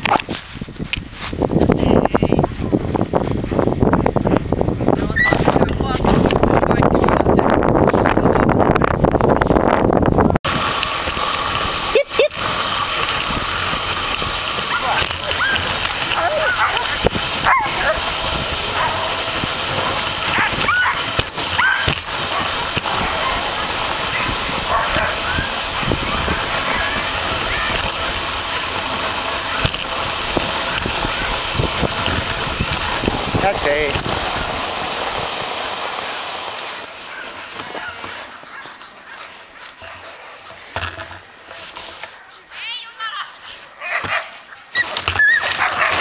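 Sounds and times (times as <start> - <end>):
hiss of wind: 0.0 - 46.0
sled gliding over snow: 0.0 - 46.0
sled dogs yelping: 11.8 - 30.0, 37.0 - 40.7, 43.3 - 46.0
dogs whining and yipping: 14.7 - 18.0, 19.9 - 22.5, 44.6 - 46.0.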